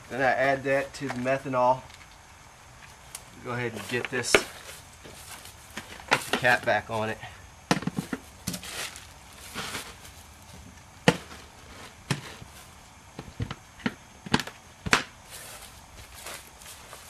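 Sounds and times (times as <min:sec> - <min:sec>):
soft rustle: 0:02.9 - 0:06.5, 0:08.0 - 0:12.9, 0:15.3 - 0:17.0.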